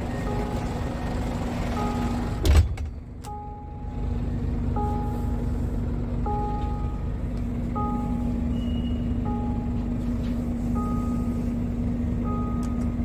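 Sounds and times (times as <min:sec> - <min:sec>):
steady low hum: 0:00.0 - 0:13.0
electronic warning chime: 0:07.7 - 0:13.0.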